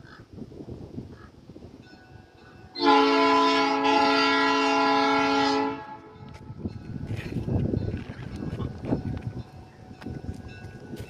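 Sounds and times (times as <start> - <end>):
locomotive air horn: 2.8 - 6.3.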